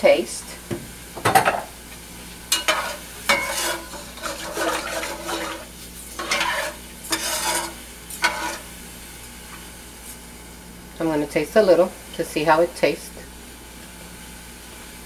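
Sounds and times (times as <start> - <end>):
spoon stirring rice in metal pot: 6.2 - 8.6.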